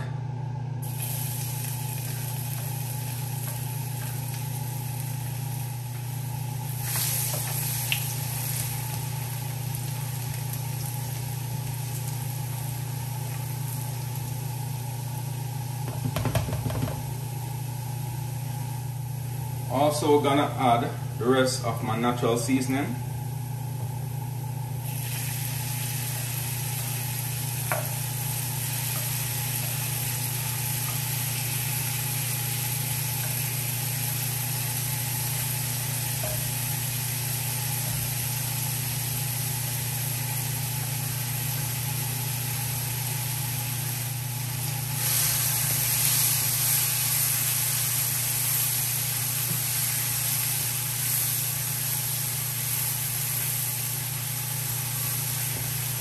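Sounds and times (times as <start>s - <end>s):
vegetables sizzling in butter: 0.8s - 16.1s, 23.3s - 56.0s.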